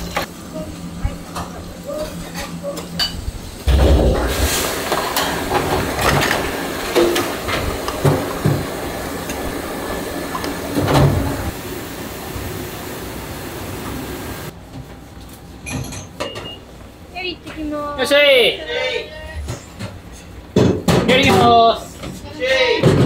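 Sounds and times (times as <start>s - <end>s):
kitchen noise: 4.2s - 11.6s.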